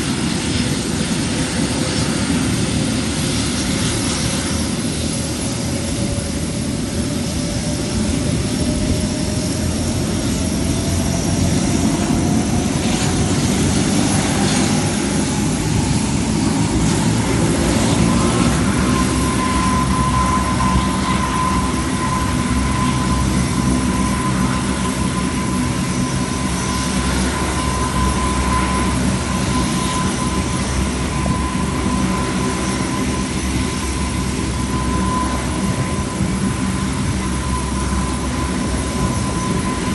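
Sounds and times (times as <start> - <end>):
thin engine whine: 0.0 - 39.9
turboprop engines droning: 0.0 - 39.9.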